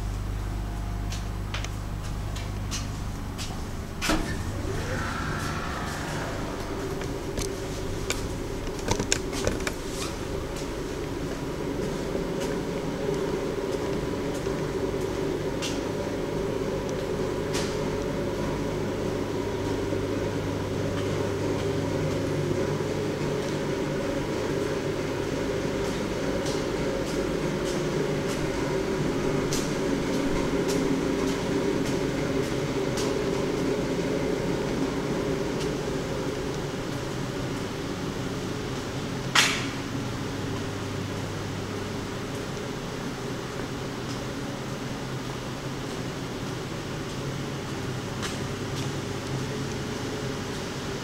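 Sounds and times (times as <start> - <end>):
air handling fans humming: 0.0 - 51.0.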